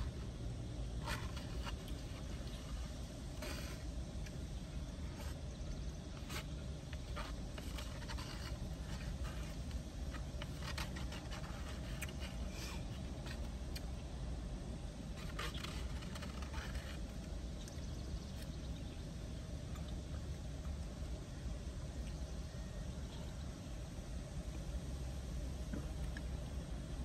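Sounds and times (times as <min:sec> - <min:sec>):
plastic fork scraping in foam cup: 0:01.0 - 0:05.4, 0:06.1 - 0:13.9.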